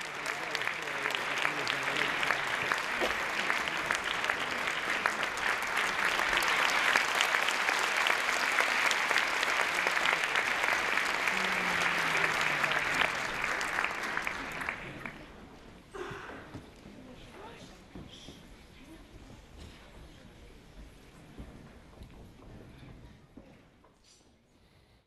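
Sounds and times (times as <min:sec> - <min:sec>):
audience applauding: 0:00.0 - 0:15.3.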